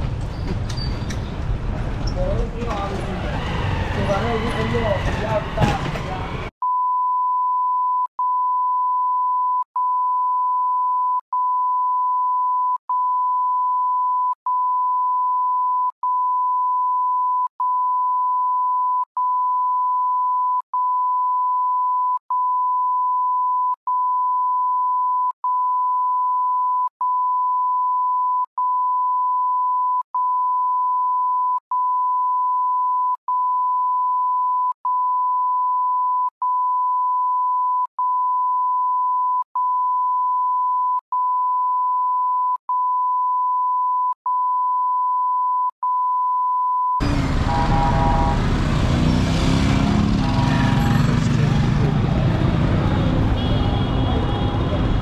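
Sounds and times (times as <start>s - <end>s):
street sound: 0.0s - 6.6s, 47.0s - 55.0s
pure electronic tone: 47.0s - 48.4s.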